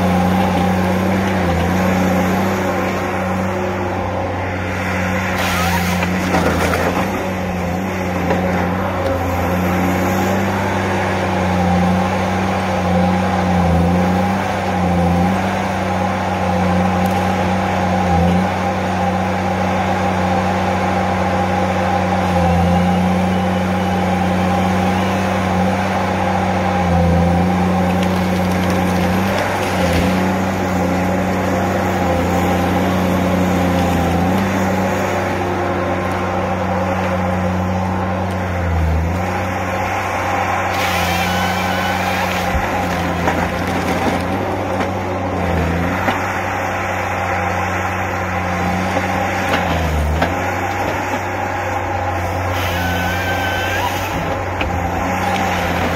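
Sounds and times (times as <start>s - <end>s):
diesel engine droning: 0.0s - 55.9s.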